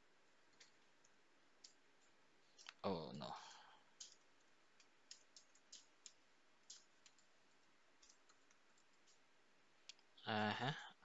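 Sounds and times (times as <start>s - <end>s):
computer keyboard typing: 0.5s - 2.7s, 4.0s - 9.2s.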